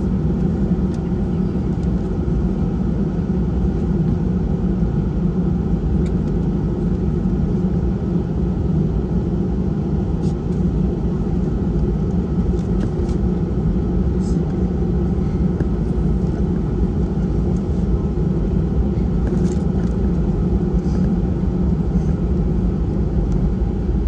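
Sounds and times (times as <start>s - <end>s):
constant hum: 0.0s - 24.0s
jet engines low rumble: 0.0s - 24.0s.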